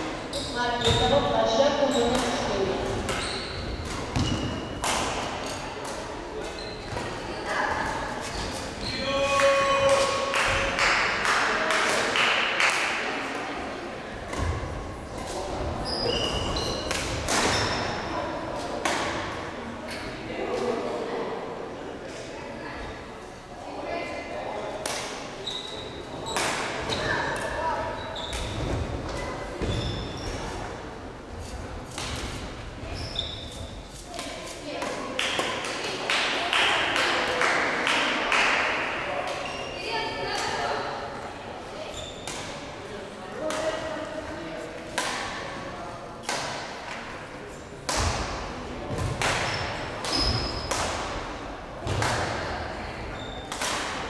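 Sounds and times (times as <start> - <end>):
sports hall background noise: 0.0 - 54.0
shoes squeaking on court floor: 0.3 - 9.2, 15.2 - 18.0, 25.4 - 30.8, 32.8 - 34.1, 39.3 - 40.1, 41.9 - 42.6, 49.0 - 50.8, 53.1 - 53.6
racket hitting shuttlecock: 2.1 - 3.2, 3.8 - 6.0, 16.8 - 17.7, 26.3 - 26.8, 45.0 - 45.4, 47.9 - 51.2, 53.4 - 54.0.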